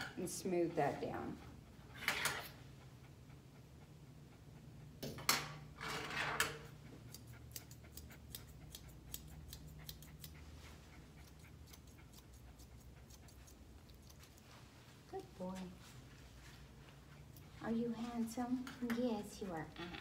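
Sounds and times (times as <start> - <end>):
shears snipping dog's coat: 6.6 - 15.8.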